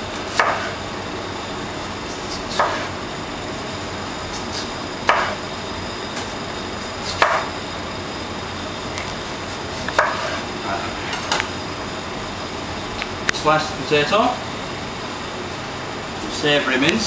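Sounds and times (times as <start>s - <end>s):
steady background hiss: 0.0s - 17.0s
knife chopping on plastic board: 0.3s - 0.7s, 2.5s - 2.9s, 5.1s - 5.4s, 7.2s - 7.5s, 9.9s - 10.4s.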